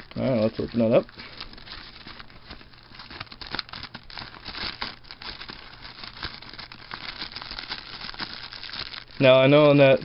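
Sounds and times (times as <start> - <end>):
plastic packaging crinkling: 0.0 - 10.0.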